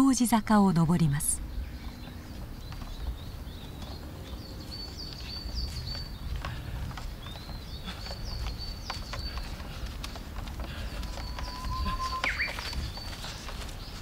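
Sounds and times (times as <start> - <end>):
footsteps on forest trail: 1.4 - 14.0
high thin chirping: 11.1 - 13.1.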